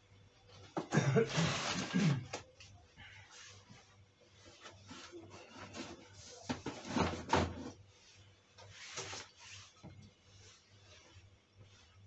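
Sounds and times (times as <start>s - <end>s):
objects knocking and scraping: 5.2s - 7.8s.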